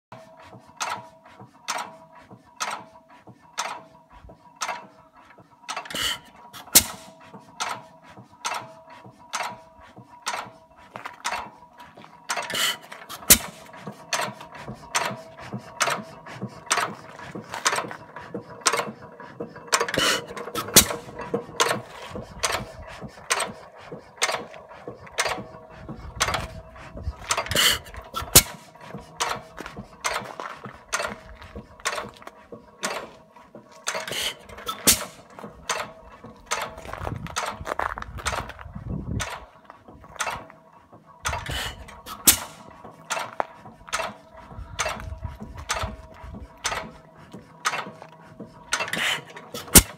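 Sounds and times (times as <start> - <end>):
engine clicking: 0.1 - 49.9
engine bangs: 10.2 - 49.9.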